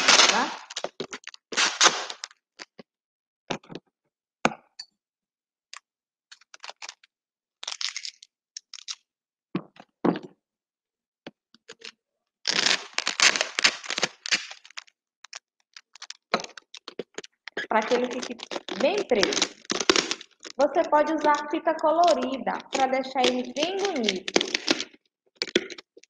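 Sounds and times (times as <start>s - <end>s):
packing tape pulled off roll: 0.0s - 2.4s, 7.6s - 9.0s, 12.5s - 26.0s.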